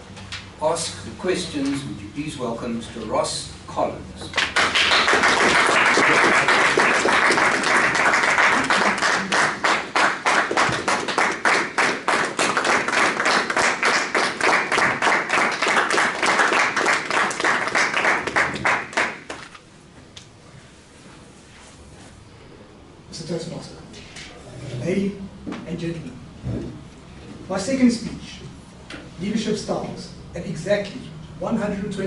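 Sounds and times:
audience clapping: 4.4s - 19.6s.

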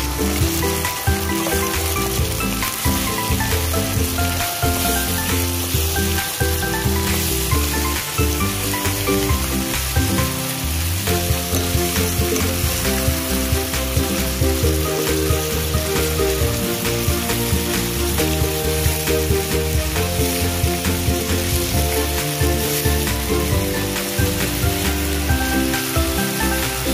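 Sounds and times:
background music: 0.0s - 26.9s
chicken and onions sizzling in pan: 0.0s - 26.9s
wooden spatula stirring: 14.1s - 26.9s.

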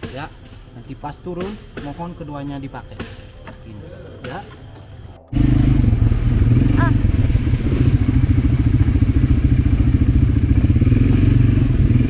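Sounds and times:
quad bike engine droning: 3.8s - 12.0s.

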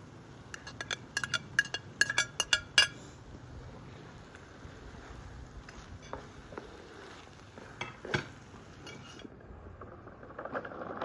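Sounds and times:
spoon scraping a frying pan: 0.5s - 3.1s, 7.6s - 9.3s.

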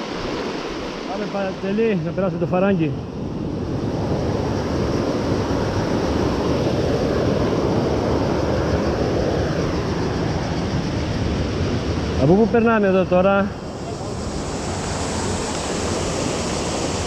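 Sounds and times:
river rushing over boulders: 0.0s - 2.7s.

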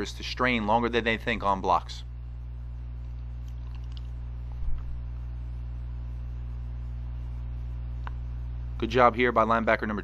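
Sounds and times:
electrical mains hum: 0.0s - 10.0s
brief low thump: 4.6s - 5.0s.

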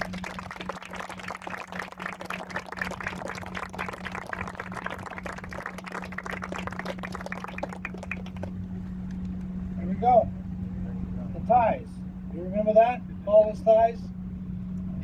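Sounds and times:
crowd applauding: 0.0s - 9.5s
steady low hum: 0.0s - 15.0s.

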